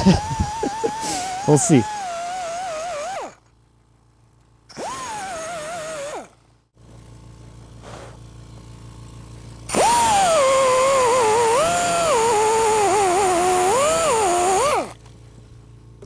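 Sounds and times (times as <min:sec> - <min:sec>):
die grinder whining: 0:00.0 - 0:03.5, 0:04.7 - 0:06.4, 0:09.7 - 0:15.1
low steady hum: 0:00.0 - 0:16.0.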